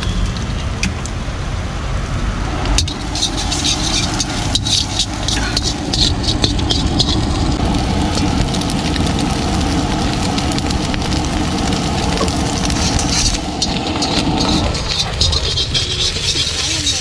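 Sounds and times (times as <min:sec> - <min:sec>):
gas burner roaring: 0:00.8 - 0:17.0
egg and vegetables sizzling: 0:02.5 - 0:17.0
metal spatula scraping wok: 0:02.8 - 0:08.3, 0:12.2 - 0:17.0.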